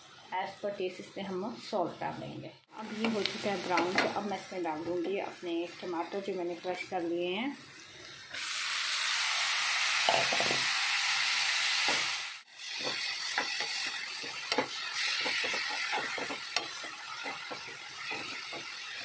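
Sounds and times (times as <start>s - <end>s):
tomatoes sizzling in hot oil: 0.0s - 19.0s
ladle scraping and tapping pan: 12.8s - 19.0s.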